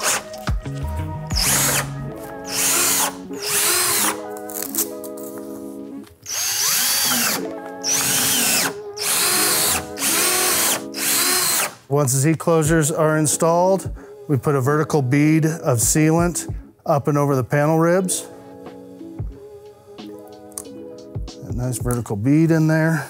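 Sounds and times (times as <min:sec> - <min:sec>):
background music: 0:00.0 - 0:23.0
cordless drill whirring: 0:01.3 - 0:04.2, 0:06.2 - 0:11.8.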